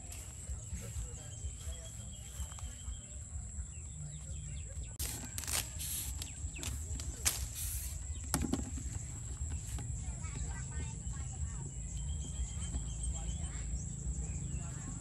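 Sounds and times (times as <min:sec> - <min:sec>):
steady low rumble: 0:00.0 - 0:08.3
leaves and branches rustling: 0:00.0 - 0:10.1.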